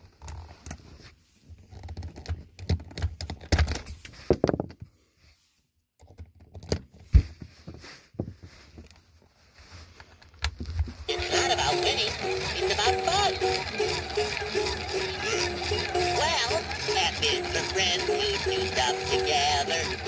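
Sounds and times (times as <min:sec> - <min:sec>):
plastic toy clicking and tapping: 0:11.1 - 0:20.0.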